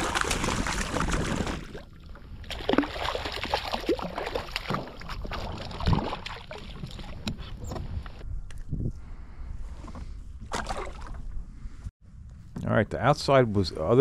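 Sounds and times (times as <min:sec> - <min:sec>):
fish thrashing and water splashing: 0:00.0 - 0:07.4, 0:10.5 - 0:11.2.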